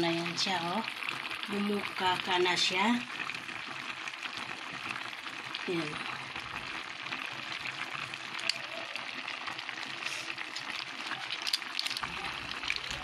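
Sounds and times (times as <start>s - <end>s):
clams simmering in a pan: 0.0s - 13.0s
shells clicking as stirred: 10.5s - 12.8s.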